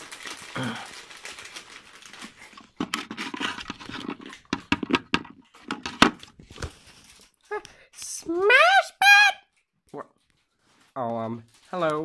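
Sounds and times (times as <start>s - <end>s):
toy figures clattering on wood: 2.2s - 6.3s
person making squawking noises: 7.5s - 9.5s.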